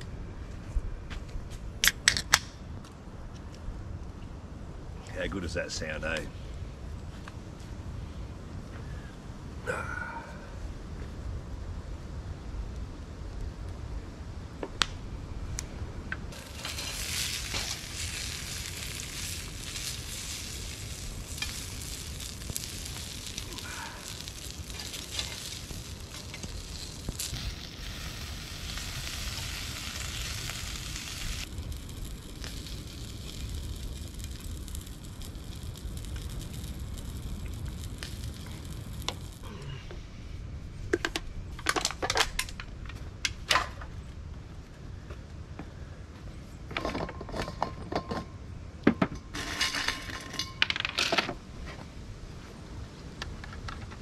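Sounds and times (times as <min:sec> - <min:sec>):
wood fire crackling: 0:11.2 - 0:39.8
food sizzling in pan: 0:16.4 - 0:39.4.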